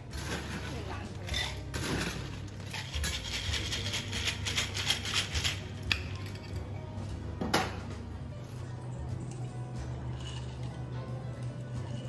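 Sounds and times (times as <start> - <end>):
ice cubes into metal shaker: 1.8 - 5.7
ice rattling in shaker: 1.8 - 5.8.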